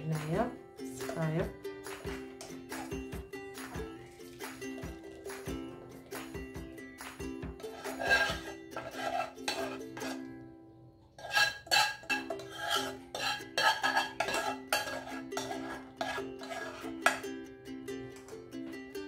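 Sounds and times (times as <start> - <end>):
light ukulele music: 0.0 - 10.8, 11.7 - 19.0
metal spoon scraping sieve: 7.6 - 10.2, 11.2 - 17.2.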